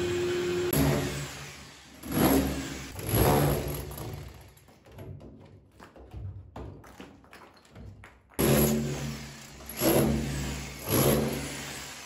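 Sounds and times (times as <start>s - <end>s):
drill boring into wall: 0.0s - 4.4s, 8.4s - 12.0s.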